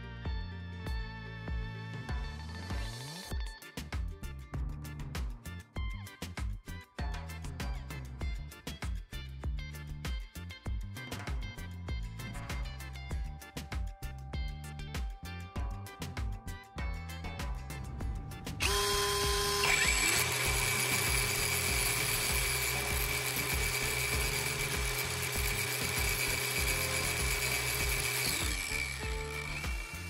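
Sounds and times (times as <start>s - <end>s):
background music: 0.0s - 30.0s
angle grinder whine: 18.6s - 30.0s
cordless drill running: 18.6s - 30.0s.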